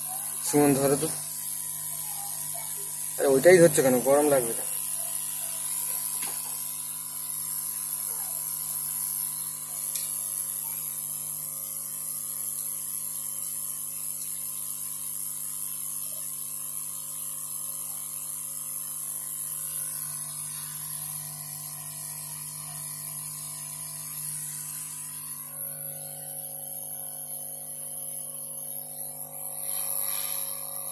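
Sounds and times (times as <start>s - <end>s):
hot air gun blowing: 0.0s - 11.4s, 23.0s - 30.9s.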